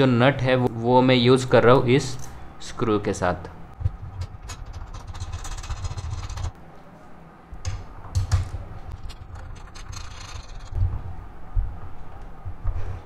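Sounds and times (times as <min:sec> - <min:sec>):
low rumbling handling noise: 0:03.7 - 0:06.7, 0:07.6 - 0:13.0
sharp clicks and knocks: 0:07.6 - 0:11.0.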